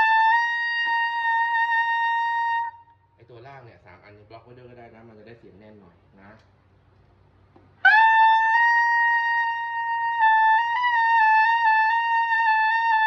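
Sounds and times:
tenor saxophone holding a high note: 7.8s - 13.0s.

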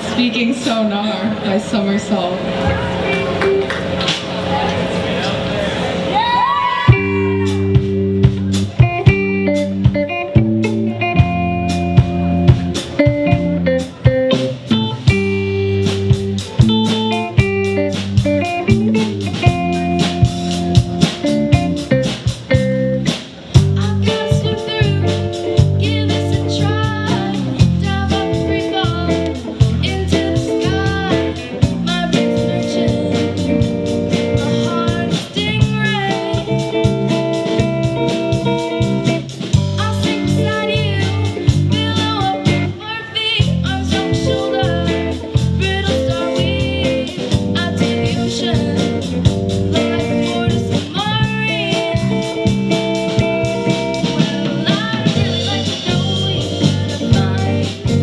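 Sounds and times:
electric guitars: 0.0s - 58.0s
drum kit: 2.4s - 58.0s
person singing: 23.8s - 36.8s, 39.8s - 52.3s, 54.0s - 58.0s.

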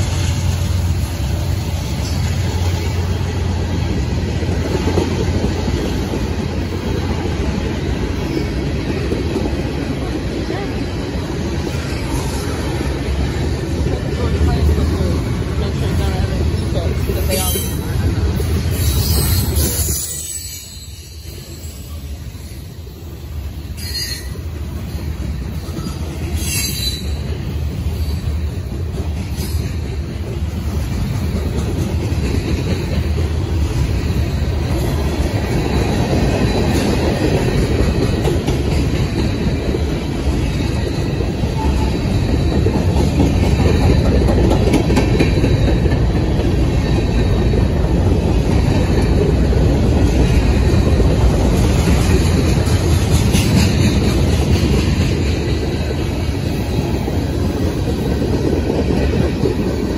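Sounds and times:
clickety-clack over rail joints: 0.0s - 59.9s
freight train wheels rumbling: 0.0s - 59.9s.

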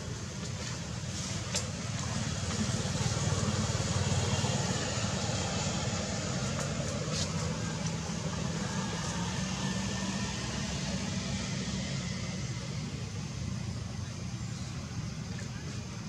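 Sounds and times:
low rumble with hiss: 0.0s - 16.0s.

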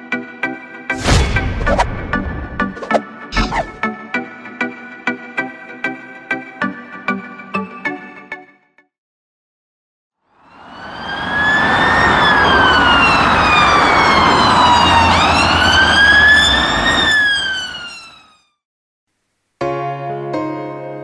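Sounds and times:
ambulance siren wailing: 10.4s - 18.6s.

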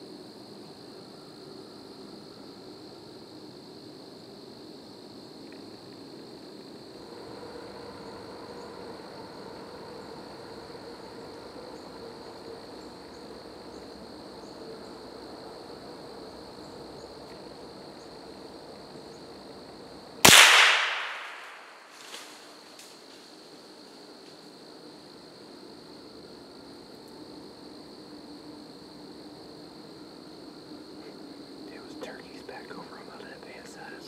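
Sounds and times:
gunshot ringing through woods: 20.2s - 22.5s.

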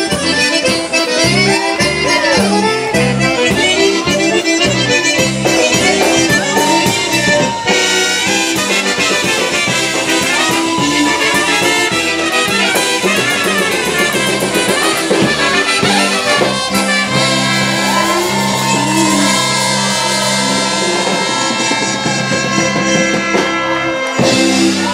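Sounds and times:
accordions: 0.0s - 24.9s
drums: 0.0s - 24.9s
keyboard: 0.0s - 24.9s
trumpets: 0.0s - 24.9s.

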